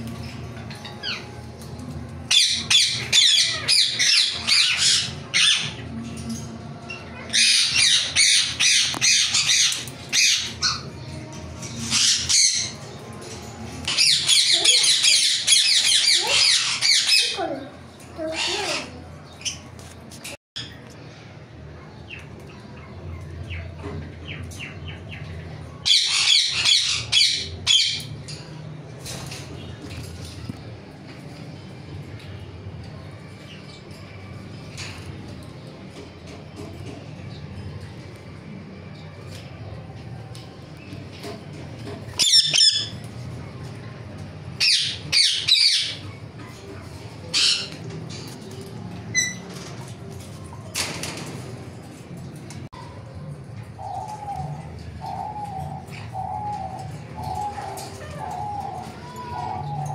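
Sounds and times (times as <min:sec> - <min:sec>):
parakeets screeching: 0:00.2 - 0:01.5, 0:02.2 - 0:19.7, 0:22.1 - 0:30.4, 0:40.8 - 0:43.7, 0:44.5 - 0:50.3, 0:53.7 - 0:59.9.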